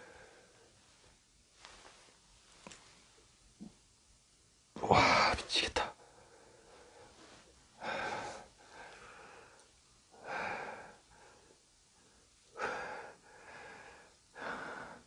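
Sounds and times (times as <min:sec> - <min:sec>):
person breathing heavily: 0:00.0 - 0:00.8, 0:06.0 - 0:15.0.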